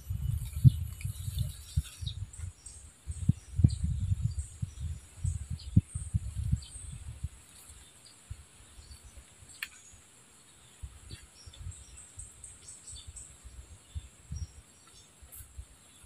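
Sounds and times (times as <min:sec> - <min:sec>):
low thumps and rumbles: 0:00.0 - 0:07.3.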